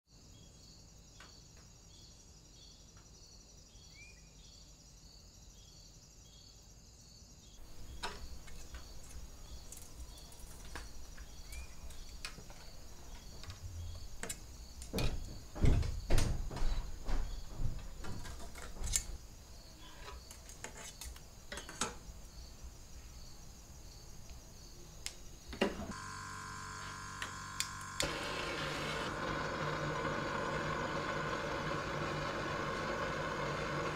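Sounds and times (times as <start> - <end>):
crickets chirping: 0.1 - 28.0
gas torch hissing: 25.9 - 30.0.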